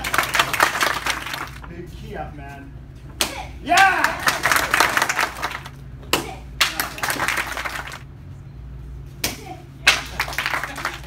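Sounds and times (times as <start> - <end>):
small group clapping: 0.0 - 1.7, 3.2 - 8.1, 9.2 - 11.0.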